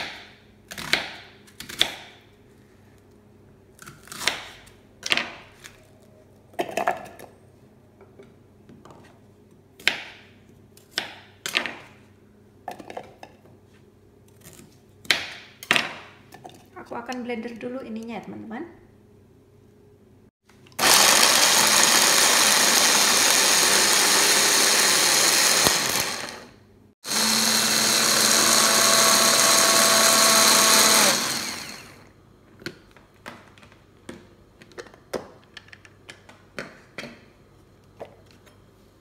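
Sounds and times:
hand blender chopping: 20.8 - 32.0.

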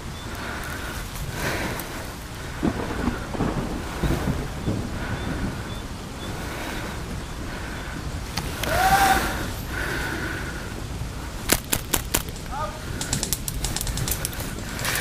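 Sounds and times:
wind and brush noise: 0.0 - 15.0
airsoft rifle shots: 11.5 - 14.2.

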